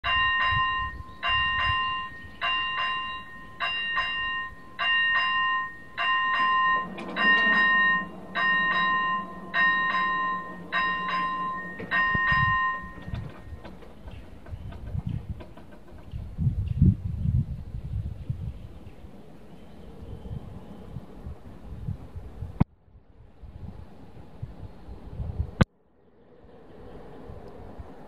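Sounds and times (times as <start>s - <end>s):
level crossing warning bell: 0.0s - 15.8s.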